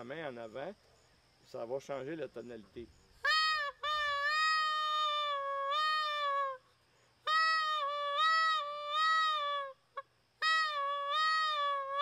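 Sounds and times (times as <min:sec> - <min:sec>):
goose reed call notes: 0:07.3 - 0:12.0.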